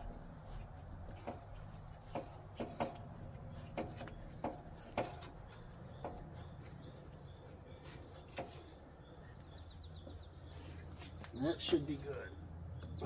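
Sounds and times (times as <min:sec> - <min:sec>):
wing nuts clicking and knocking: 0:00.0 - 0:08.9.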